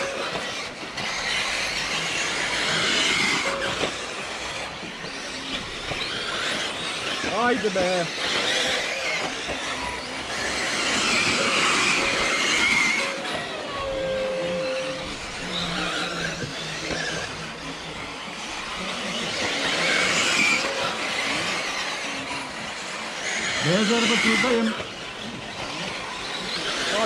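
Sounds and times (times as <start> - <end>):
rc car motors whining: 0.0 - 27.0.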